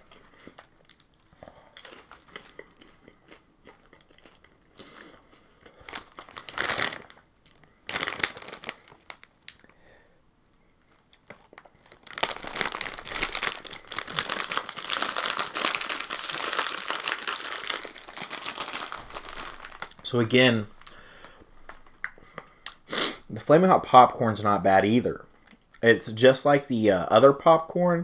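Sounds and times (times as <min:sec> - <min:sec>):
snack bags crinkling: 0:00.0 - 0:09.8, 0:10.8 - 0:22.8.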